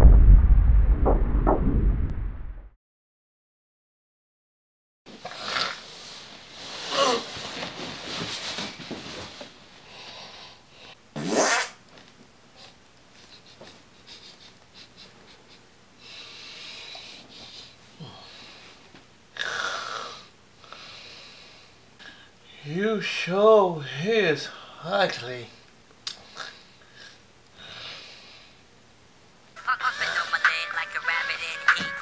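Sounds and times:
man snoring and snorting: 0:19.4 - 0:20.3.

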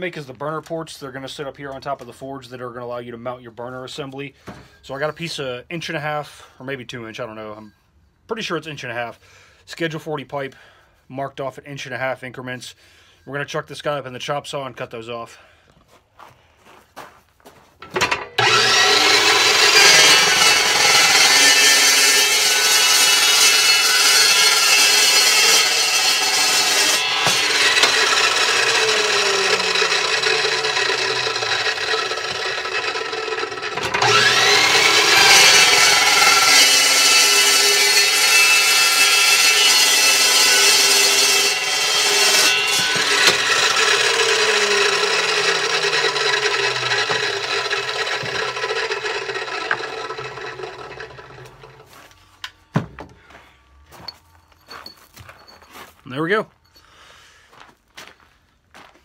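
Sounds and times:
chop saw cutting steel pipe: 0:17.8 - 0:53.1.

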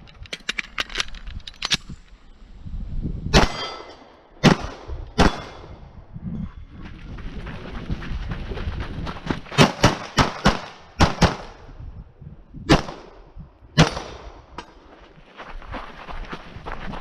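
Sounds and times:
pistol shots: 0:03.3 - 0:05.8, 0:09.6 - 0:11.6, 0:12.7 - 0:13.2, 0:13.8 - 0:14.4.

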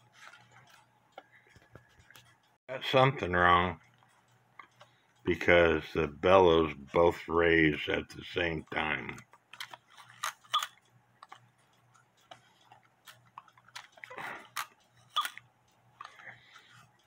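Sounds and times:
clicks and taps on clock: 0:00.4 - 0:02.6, 0:03.2 - 0:06.3
soft breath: 0:16.0 - 0:17.0.

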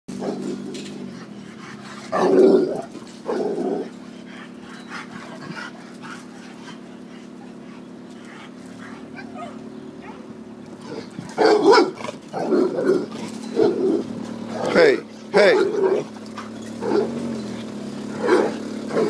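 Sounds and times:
steady low hum: 0:00.1 - 0:19.0
dog barking: 0:06.2 - 0:19.0.

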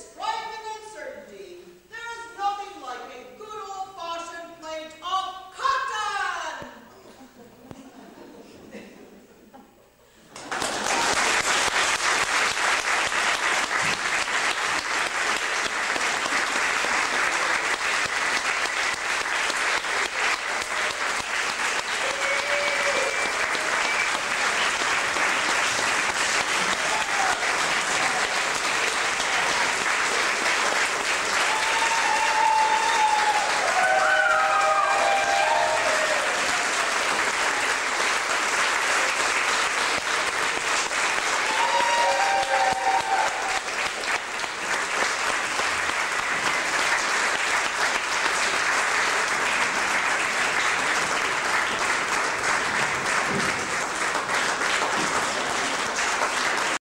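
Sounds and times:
audience applauding: 0:10.2 - 0:56.8
shouted cheers: 0:21.9 - 0:24.3, 0:26.6 - 0:28.4, 0:31.3 - 0:37.1, 0:41.3 - 0:43.7.

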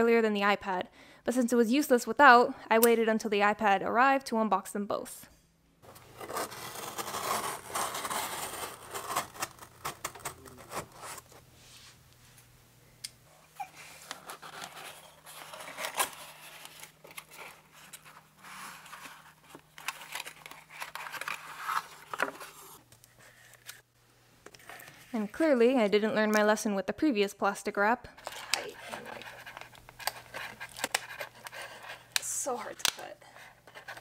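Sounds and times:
knife slitting packing tape: 0:06.1 - 0:11.2.

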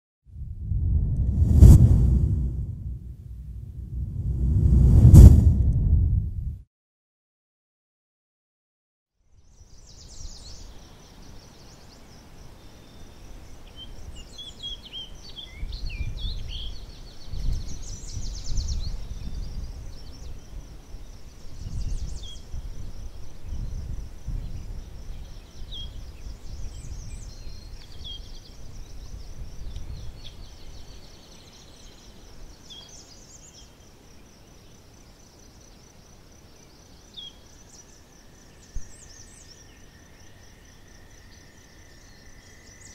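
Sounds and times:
low rumble: 0:00.4 - 0:06.6
crickets trilling: 0:18.9 - 0:42.9.

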